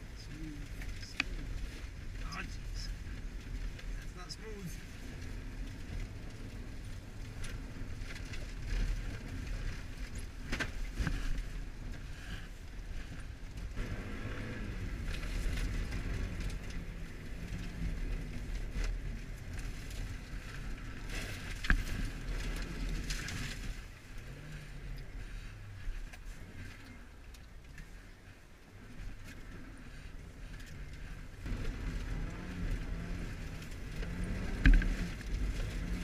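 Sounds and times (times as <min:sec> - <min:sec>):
car engine revving: 0:13.1 - 0:27.9, 0:28.7 - 0:36.0.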